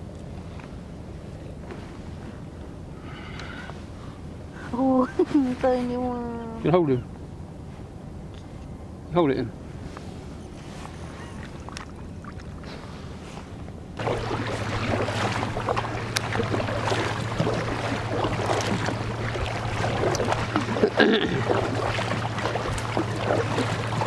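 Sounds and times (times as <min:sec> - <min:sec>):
water washing along hull: 0:10.6 - 0:24.0
paddles splashing in water: 0:10.8 - 0:13.2, 0:14.0 - 0:24.0.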